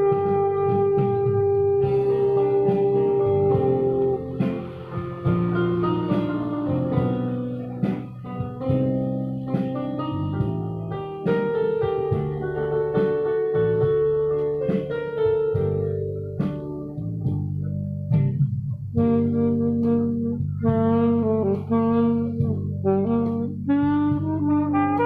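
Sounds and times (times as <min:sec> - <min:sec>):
saxophone and trumpet melody: 0:00.0 - 0:12.9, 0:18.9 - 0:25.0
band accompaniment with held notes: 0:00.0 - 0:14.1.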